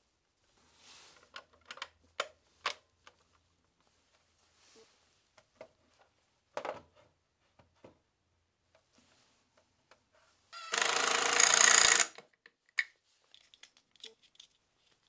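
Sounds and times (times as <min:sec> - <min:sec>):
cordless power driver driving screw: 0:10.6 - 0:12.2.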